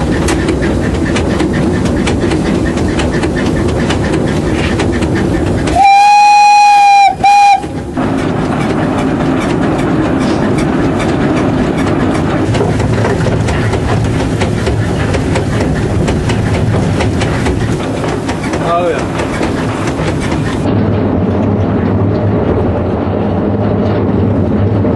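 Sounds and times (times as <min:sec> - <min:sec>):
train rumble: 0:00.0 - 0:24.9
wheels clattering on rails: 0:00.0 - 0:24.9
steam locomotive whistle: 0:05.7 - 0:07.8.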